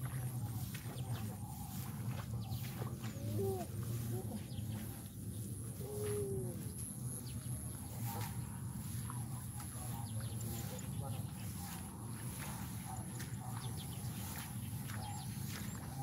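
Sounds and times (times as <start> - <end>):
birds calling: 0.0 - 16.0
steady low rumble: 0.0 - 16.0.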